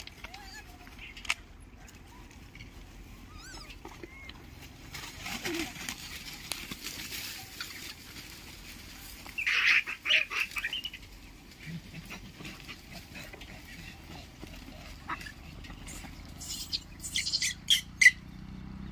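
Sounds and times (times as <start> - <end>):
monkeys squabbling: 0.0 - 6.3, 9.0 - 18.3
monkey shrill screeches: 16.4 - 18.2.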